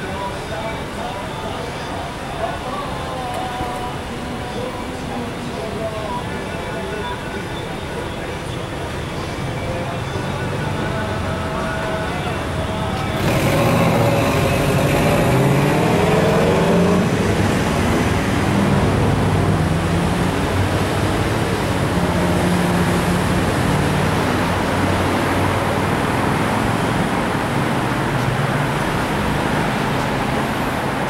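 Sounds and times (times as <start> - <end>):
cars passing slowly: 8.7 - 31.0.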